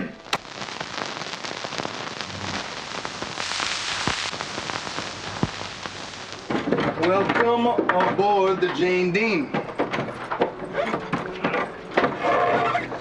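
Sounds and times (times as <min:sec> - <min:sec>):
steady rain hiss: 0:00.0 - 0:07.6.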